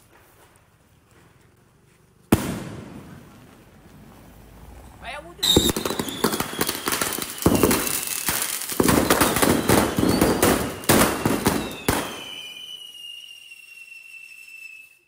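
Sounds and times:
firecrackers cracking and banging: 0:02.2 - 0:04.0, 0:05.4 - 0:13.3
thin high whistle: 0:09.4 - 0:15.0.

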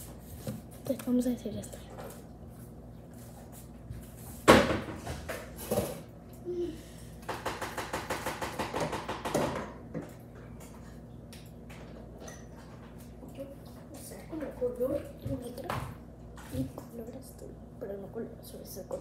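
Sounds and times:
sharp knocks of objects: 0:07.2 - 0:10.1.

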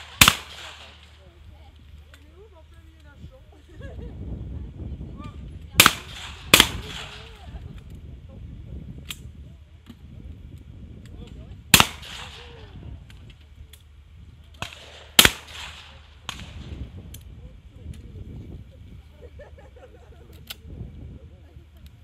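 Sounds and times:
shotgun shots with echo: 0:00.0 - 0:01.2, 0:05.8 - 0:07.3, 0:11.7 - 0:12.6, 0:14.6 - 0:16.7.

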